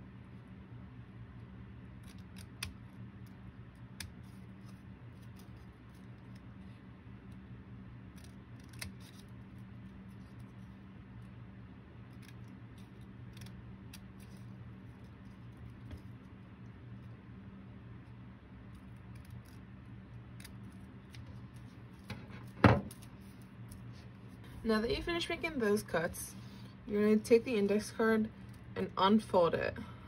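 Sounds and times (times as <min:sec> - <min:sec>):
scissors snipping paper: 0:08.1 - 0:10.6, 0:18.7 - 0:23.9.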